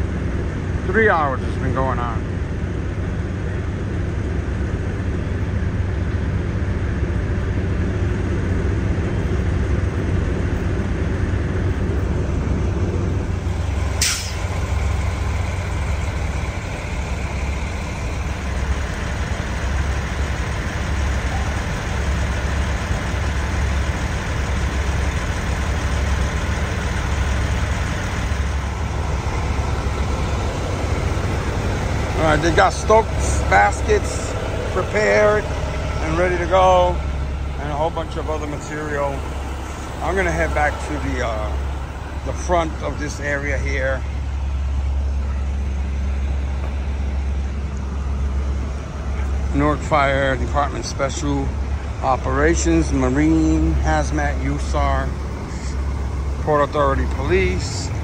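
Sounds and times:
diesel engines idling: 0.0 - 58.0
air brake hiss: 14.0 - 14.6.

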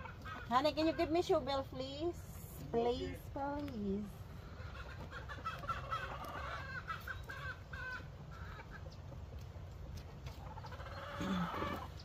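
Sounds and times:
chicken clucking: 4.4 - 12.0.

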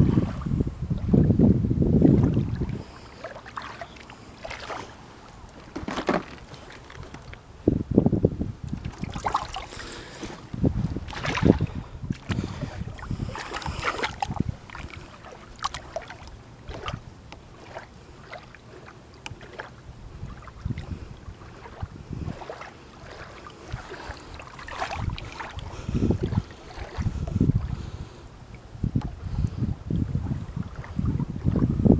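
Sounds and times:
water splashing against boat: 0.0 - 31.9.

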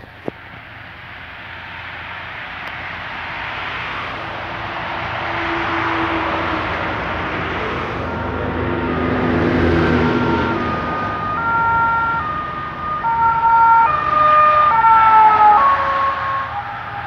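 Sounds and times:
road noise: 0.0 - 17.0
two-tone police siren: 5.3 - 17.0.

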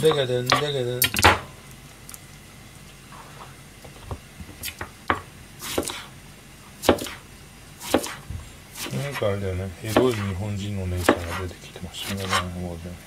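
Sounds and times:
knife cutting on plastic board: 5.6 - 6.1, 6.8 - 7.2, 7.8 - 9.2, 9.9 - 10.4, 11.0 - 12.6.

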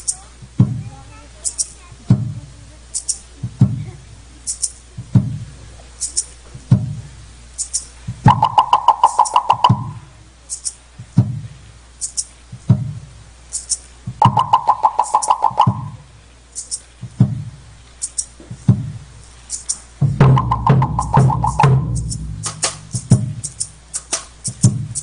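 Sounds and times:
deep drum beats: 0.0 - 1.0, 1.9 - 2.5, 3.3 - 4.0, 4.8 - 5.6, 6.4 - 10.0, 10.9 - 11.6, 12.5 - 13.2, 14.0 - 16.2, 16.9 - 17.8, 18.4 - 19.2, 19.8 - 25.0
rapid pitched wooden knocking: 7.7 - 10.0, 14.1 - 16.0, 19.6 - 25.0.

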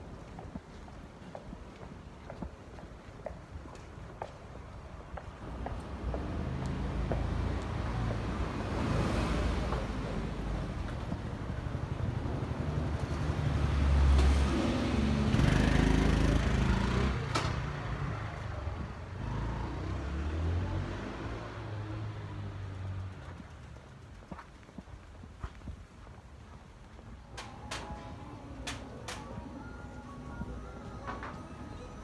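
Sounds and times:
street traffic noise: 0.0 - 32.0
motor vehicle passing: 12.6 - 24.2.

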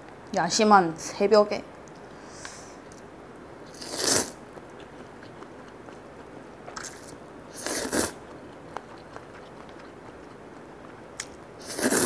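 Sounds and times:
noodles being slurped: 3.7 - 4.4, 6.8 - 8.2, 11.6 - 12.0.

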